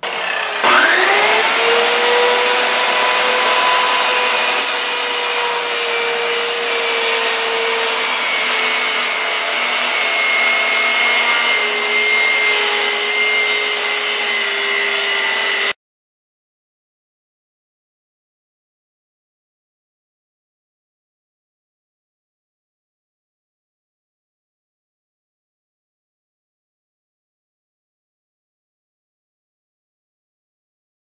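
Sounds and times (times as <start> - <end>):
electric saw cutting plywood: 0.0 - 15.8.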